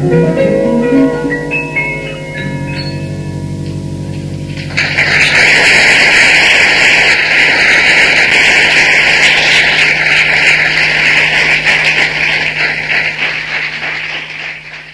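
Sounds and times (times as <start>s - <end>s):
audience applauding: 4.5s - 14.9s.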